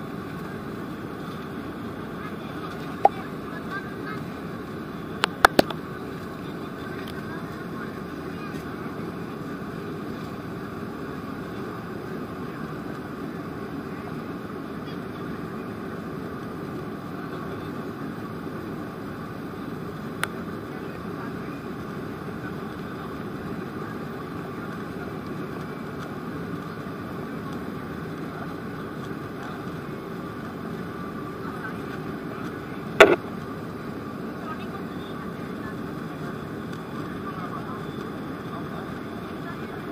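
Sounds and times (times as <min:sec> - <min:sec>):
jet engines in cabin: 0:00.0 - 0:39.9
sharp click: 0:33.0 - 0:33.2.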